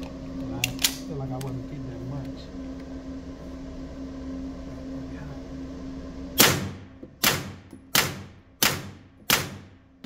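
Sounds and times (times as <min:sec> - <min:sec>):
steady low hum: 0:00.0 - 0:10.0
suppressed pistol shots: 0:06.4 - 0:09.7.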